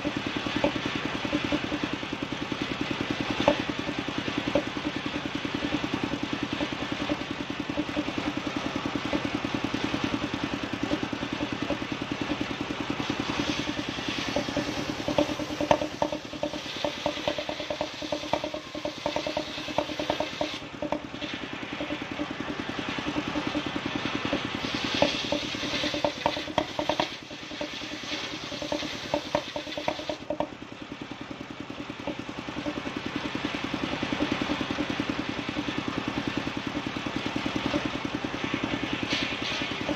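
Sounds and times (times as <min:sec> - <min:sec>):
engine-driven circular saw running: 0:00.0 - 0:39.9
saw blade cutting wood: 0:10.8 - 0:22.5, 0:23.1 - 0:30.4.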